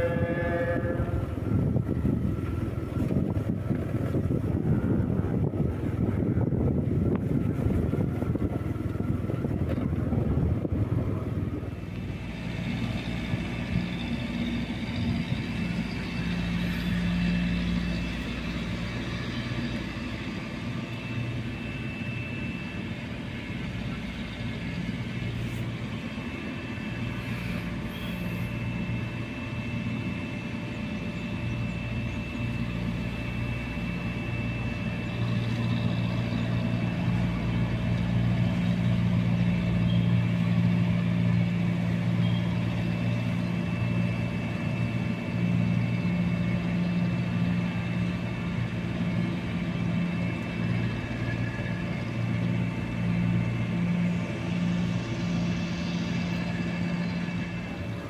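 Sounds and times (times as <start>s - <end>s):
wind buffeting microphone: 0.0s - 21.4s
engine idling: 0.0s - 58.0s.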